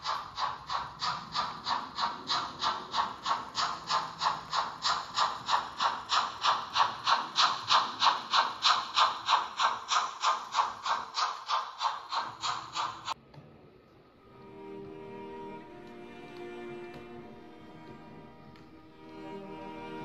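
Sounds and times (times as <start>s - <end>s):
model locomotive steam chuffs: 0.0s - 13.2s.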